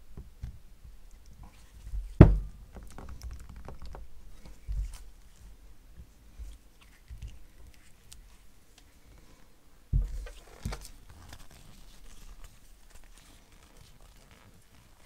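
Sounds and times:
metal part thumping on workbench: 0:02.2 - 0:02.5.

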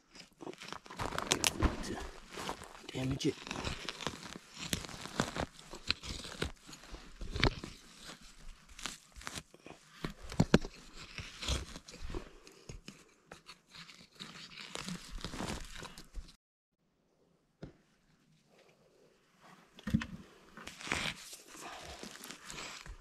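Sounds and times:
metal tool digging in soil and needles: 0:00.2 - 0:12.1, 0:20.6 - 0:22.9.

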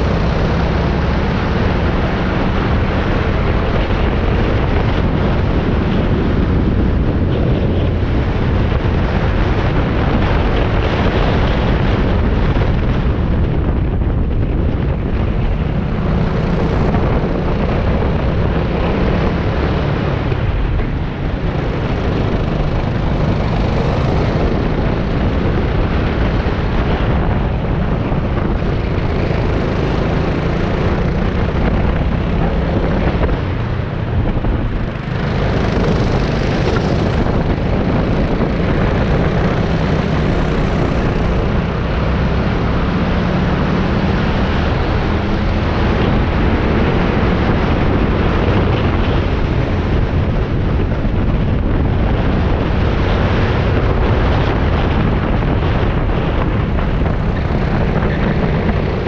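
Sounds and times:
wind buffeting microphone: 0:00.0 - 0:59.0
kart engines racing: 0:14.2 - 0:59.0.

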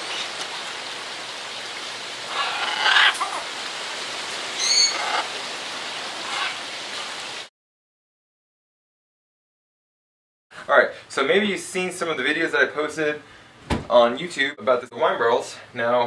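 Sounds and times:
macaws squawking: 0:02.3 - 0:03.6, 0:04.5 - 0:05.4, 0:06.2 - 0:06.6.

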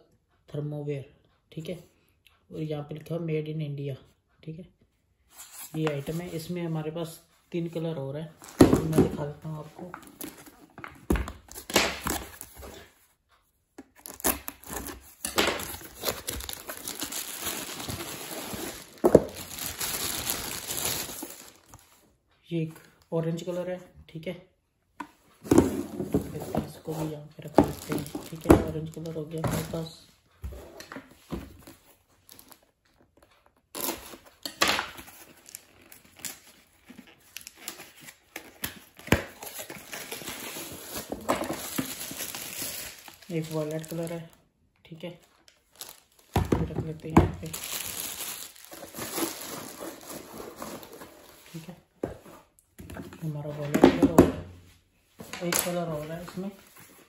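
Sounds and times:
plastic wrapper crinkling: 0:14.0 - 0:22.0, 0:26.7 - 0:29.9, 0:32.2 - 0:44.4, 0:45.4 - 0:46.4, 0:47.0 - 0:51.7.

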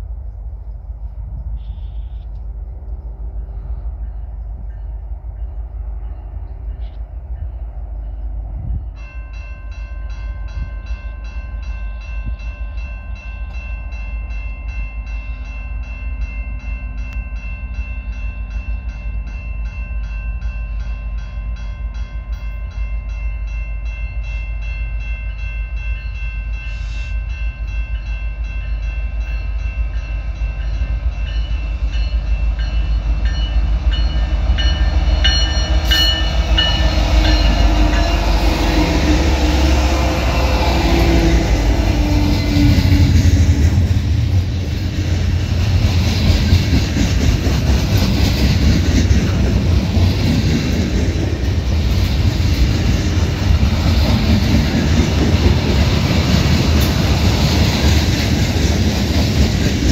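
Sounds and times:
train wheel and rail noise: 0:00.0 - 0:59.9
level-crossing warning bell: 0:03.3 - 0:47.0
diesel locomotive rumble: 0:11.7 - 0:59.9.

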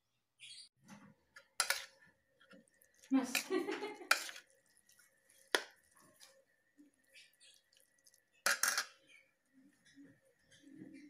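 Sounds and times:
metal spoon clinking on plate: 0:08.4 - 0:09.1.

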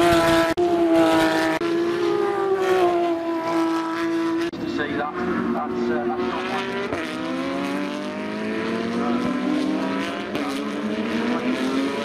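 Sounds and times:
race car engines accelerating: 0:00.0 - 0:12.0.

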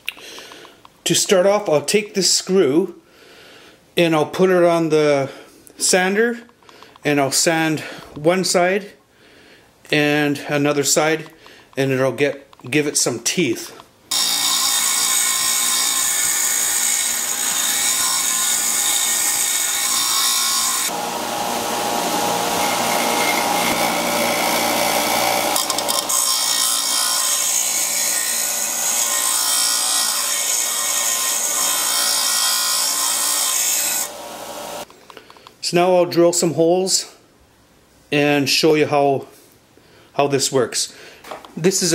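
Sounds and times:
screw grinding on sanding disc: 0:14.1 - 0:21.0, 0:22.6 - 0:34.1
sander motor hum: 0:14.1 - 0:26.2, 0:33.4 - 0:34.9.

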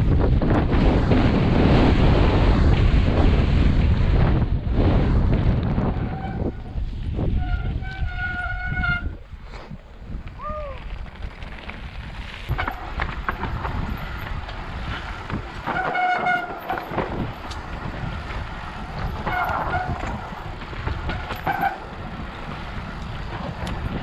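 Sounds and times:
tyres rumbling on dirt trail: 0:00.0 - 0:24.0
bike disc brakes honking: 0:06.0 - 0:09.2, 0:15.6 - 0:17.3, 0:19.0 - 0:22.6.

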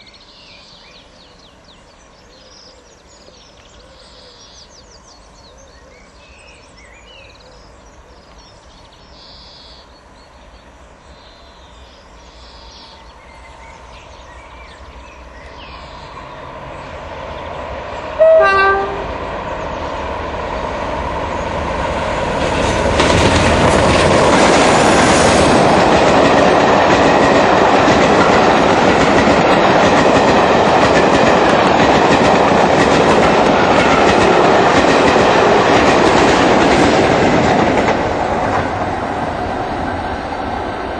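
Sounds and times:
diesel locomotive engine: 0:03.0 - 0:40.9
locomotive horn blast: 0:18.2 - 0:19.2.

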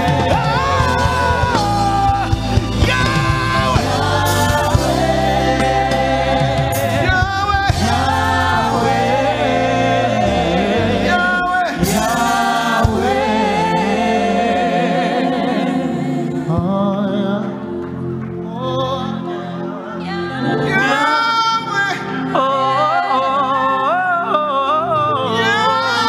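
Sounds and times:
man singing into microphone: 0:00.0 - 0:04.6, 0:16.4 - 0:17.7, 0:18.4 - 0:26.0
instrumental backing: 0:00.0 - 0:23.1
choir singing: 0:00.0 - 0:26.0.

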